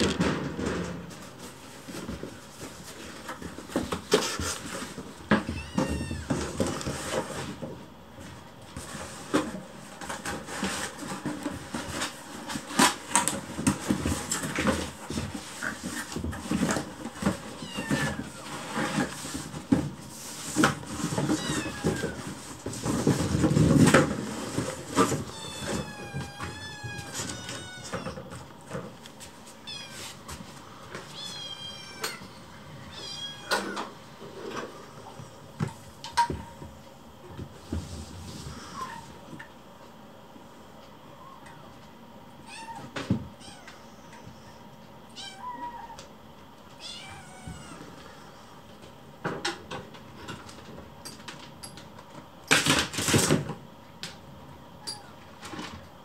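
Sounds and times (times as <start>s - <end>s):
kittens meowing: 5.5s - 6.4s, 17.5s - 18.4s, 21.2s - 22.3s, 25.3s - 28.3s.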